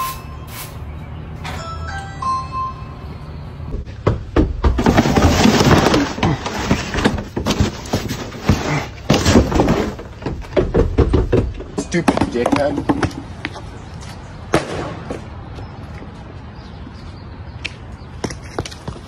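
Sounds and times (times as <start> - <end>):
knocks thuds and scraping: 3.7 - 13.4.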